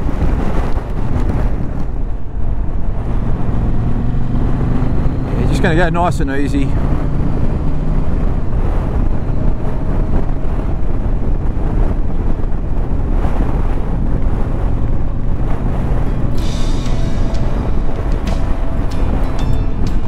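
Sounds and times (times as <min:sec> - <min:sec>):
wind rush on microphone: 0:00.0 - 0:20.0
motorcycle engine running: 0:06.8 - 0:20.0
music: 0:16.3 - 0:20.0.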